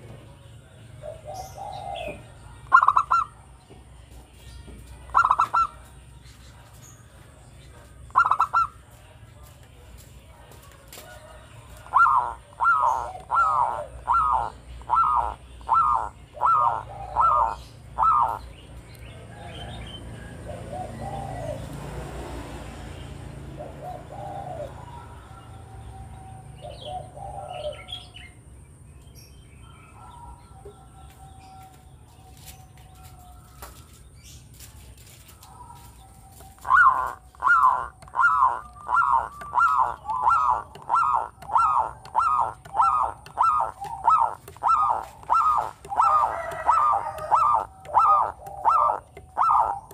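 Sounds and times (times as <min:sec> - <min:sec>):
dove calling: 0:01.0 - 0:03.8, 0:05.0 - 0:07.0, 0:07.7 - 0:09.1, 0:09.9 - 0:21.8, 0:23.4 - 0:28.4, 0:35.2 - 0:49.9.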